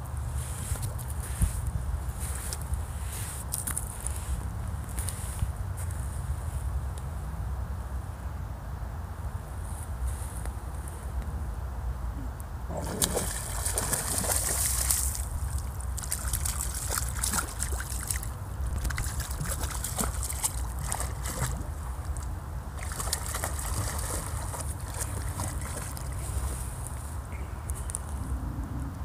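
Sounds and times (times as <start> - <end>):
water splashing as dog wades: 12.7 - 26.8.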